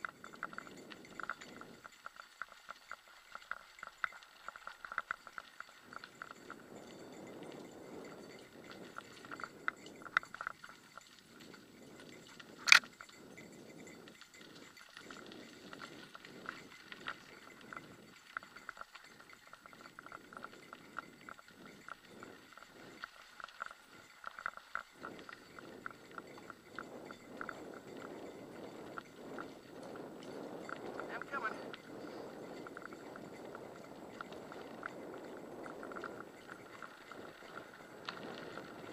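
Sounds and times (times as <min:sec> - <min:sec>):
bicycle tyre rumble: 0:00.1 - 0:38.9
bike rattling clicks: 0:12.6 - 0:13.1.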